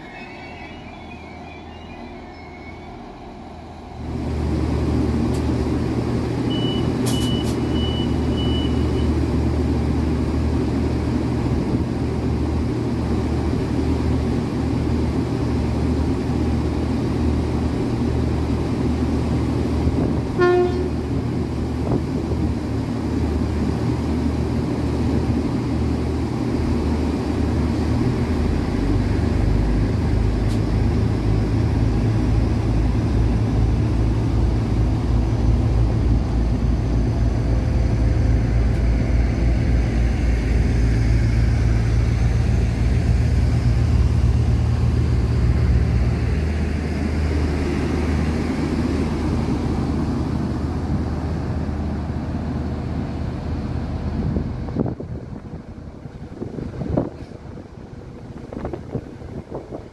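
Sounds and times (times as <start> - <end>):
door-warning beeps: 0.0 - 3.7, 6.5 - 9.2
train engines idling: 0.0 - 59.9
train horn toot: 20.3 - 21.1.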